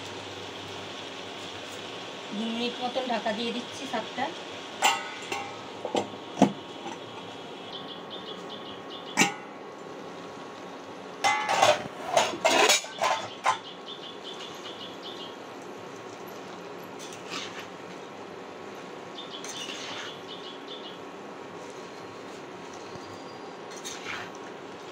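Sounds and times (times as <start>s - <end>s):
metallic clattering: 4.8s - 6.1s, 9.2s - 9.5s, 11.2s - 13.6s
metal lid clanking on pan: 4.8s - 7.0s, 9.2s - 9.6s, 11.2s - 13.6s.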